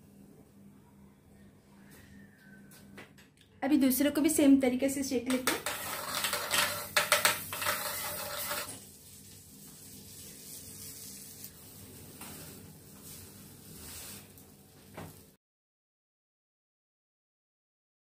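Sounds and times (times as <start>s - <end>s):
sizzling: 5.3s - 15.4s
butter scraping on hot plate: 5.4s - 8.9s.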